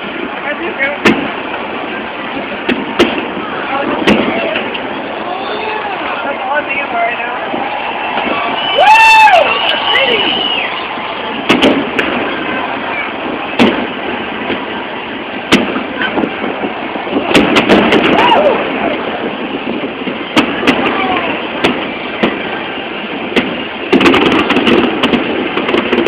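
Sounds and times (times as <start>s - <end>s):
crowd cheering: 0.0s - 26.0s
fireworks bangs: 0.0s - 26.0s
steady background rush: 0.0s - 26.0s
loud whoop: 4.2s - 6.2s, 7.2s - 13.2s, 16.8s - 19.2s.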